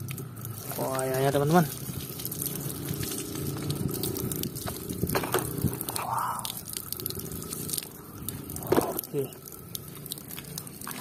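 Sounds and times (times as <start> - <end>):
water pouring and splashing on concrete: 0.0 - 11.0.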